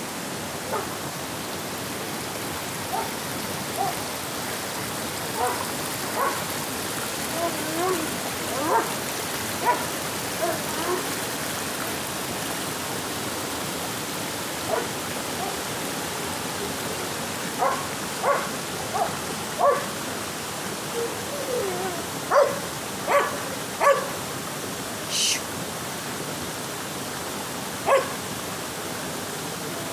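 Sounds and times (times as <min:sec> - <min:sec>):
stream flowing over rocks: 0:00.0 - 0:29.9
dog barking: 0:00.7 - 0:00.9, 0:02.9 - 0:03.2, 0:03.8 - 0:04.0, 0:05.4 - 0:05.6, 0:06.2 - 0:06.4, 0:07.8 - 0:08.9, 0:09.6 - 0:11.0, 0:14.7 - 0:15.6, 0:17.6 - 0:19.9, 0:22.3 - 0:24.2, 0:27.8 - 0:28.2.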